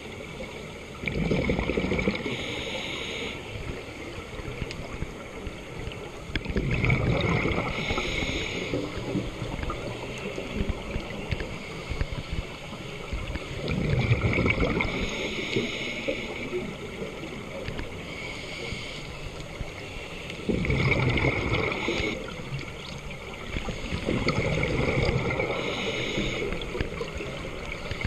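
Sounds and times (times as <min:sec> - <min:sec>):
exhaled bubbles gurgling: 0:00.0 - 0:02.7, 0:03.5 - 0:18.6, 0:20.4 - 0:28.0
underwater wash: 0:00.0 - 0:28.0
regulator hiss: 0:02.2 - 0:03.6, 0:07.7 - 0:09.1, 0:14.9 - 0:16.6, 0:18.1 - 0:20.4, 0:25.4 - 0:26.8.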